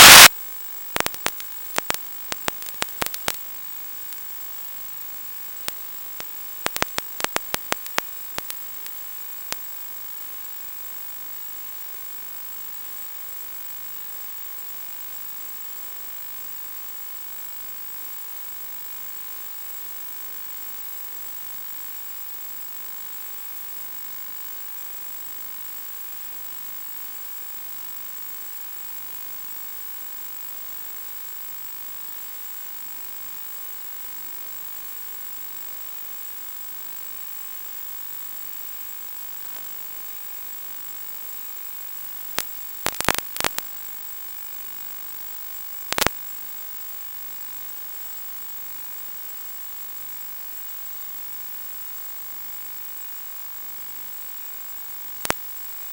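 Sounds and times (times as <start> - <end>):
electronic hiss and hum: 0.0 - 0.3, 0.9 - 3.4, 5.6 - 9.7, 42.2 - 43.9, 45.4 - 46.3, 55.1 - 55.9
high whine: 0.0 - 0.3
sharp clicks: 0.0 - 0.3, 1.0 - 3.4, 6.7 - 8.6, 42.4 - 43.6, 45.9 - 46.2.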